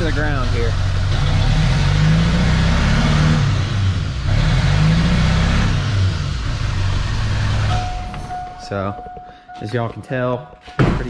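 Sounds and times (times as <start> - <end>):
diesel engine revving: 0.0 - 8.6.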